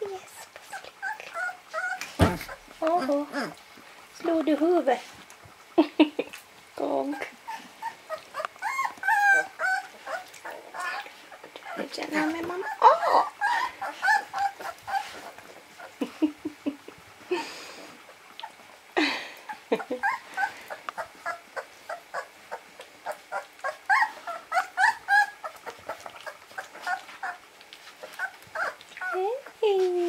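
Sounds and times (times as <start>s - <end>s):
puppies squeaking and whimpering: 0.1s - 3.6s, 6.8s - 16.0s, 19.8s - 29.4s.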